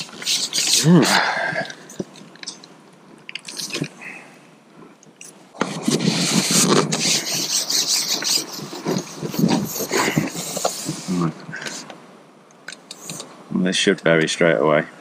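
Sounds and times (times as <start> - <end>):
fishing pole rubbing and scraping: 0.0 - 1.8, 5.6 - 11.9.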